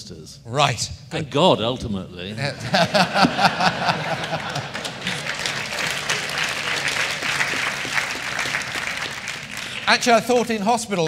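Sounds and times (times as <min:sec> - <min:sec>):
audience laughter: 0:02.4 - 0:08.5
audience applause: 0:02.9 - 0:10.7.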